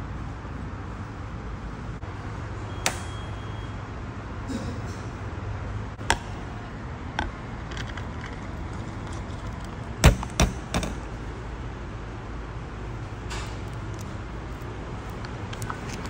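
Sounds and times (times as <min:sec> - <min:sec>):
vending machine door clicks and knocks: 0:10.0 - 0:11.1.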